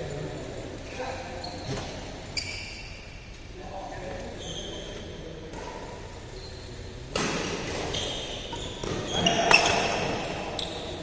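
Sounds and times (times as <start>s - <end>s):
shoes squeaking on court floor: 1.2s - 11.0s
racket striking shuttlecock: 7.1s - 7.9s.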